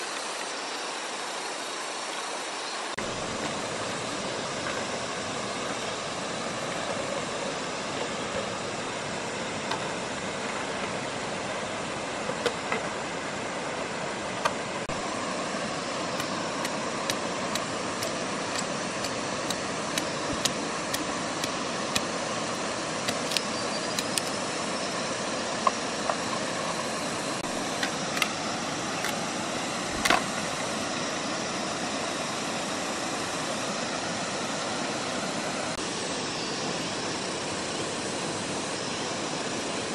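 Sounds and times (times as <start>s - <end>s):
machete chopping wood: 23.1s - 23.4s.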